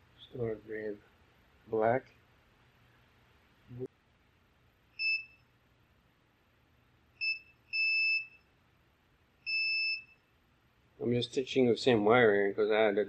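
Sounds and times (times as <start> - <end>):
multimeter continuity beeps: 5.0 - 5.5, 7.2 - 8.5, 9.4 - 10.3.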